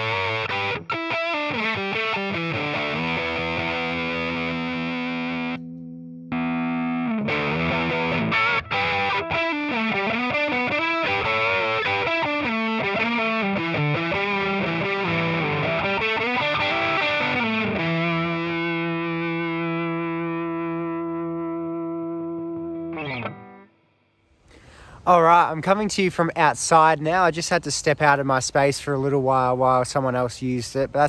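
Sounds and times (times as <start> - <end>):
distorted electric guitar riff: 0.0 - 24.3.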